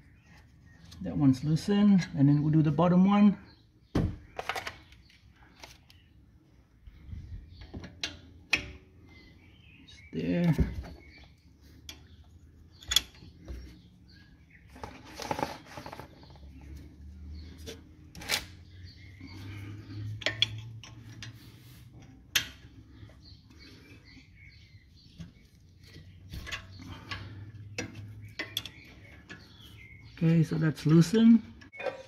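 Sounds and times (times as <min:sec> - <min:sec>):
wrenches clinking on metal bolt: 0:12.7 - 0:13.3, 0:20.1 - 0:21.4.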